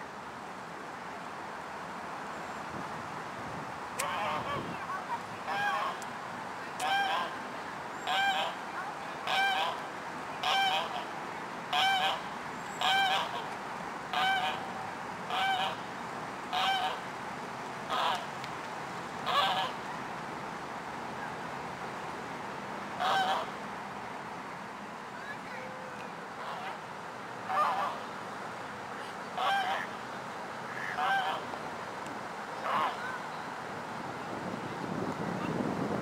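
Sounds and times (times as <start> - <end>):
goose honking: 4.0 - 4.6, 5.5 - 6.0, 6.8 - 7.3, 8.1 - 8.6, 9.2 - 9.8, 10.4 - 11.1, 11.7 - 12.2, 12.8 - 13.5, 14.1 - 14.6, 15.3 - 15.8, 16.5 - 17.0, 17.9 - 18.2, 19.3 - 19.8, 23.0 - 23.6, 26.4 - 26.8, 27.5 - 28.0, 29.4 - 30.0, 30.7 - 31.4, 32.6 - 33.2.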